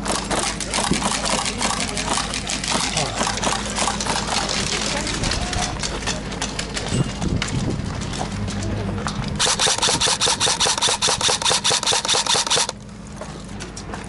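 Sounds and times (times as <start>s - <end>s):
airsoft gun full-auto burst: 9.4s - 12.8s
gearbox motor whir: 9.4s - 12.8s.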